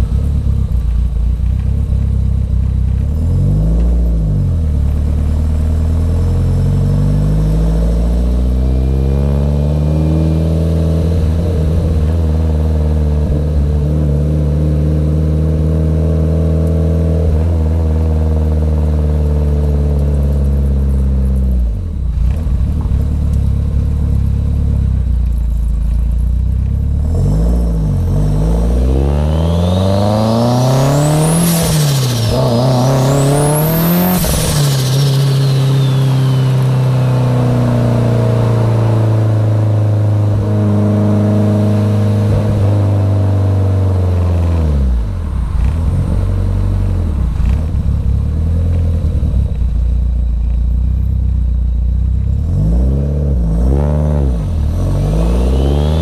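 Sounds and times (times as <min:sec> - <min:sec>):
car engine accelerating: 0:00.0 - 0:56.0
turbo whistle: 0:34.0 - 0:37.0, 0:55.2 - 0:56.0.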